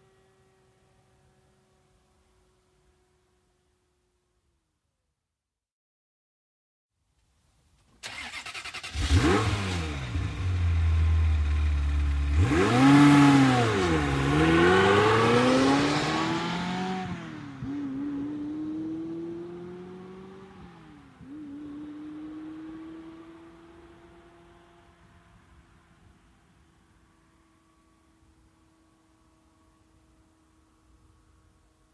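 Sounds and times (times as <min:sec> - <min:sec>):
car engine revving: 0:08.0 - 0:25.0
car engine idling: 0:10.0 - 0:12.5.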